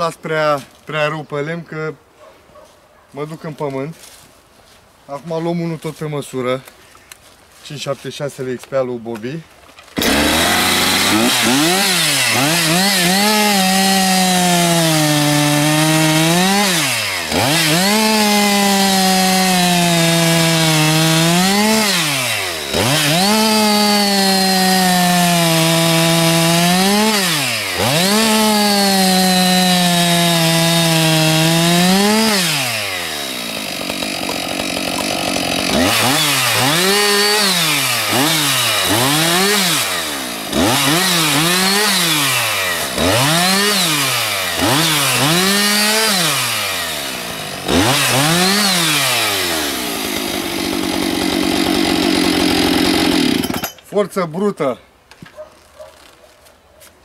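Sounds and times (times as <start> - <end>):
chainsaw cutting logs: 9.9 - 53.9.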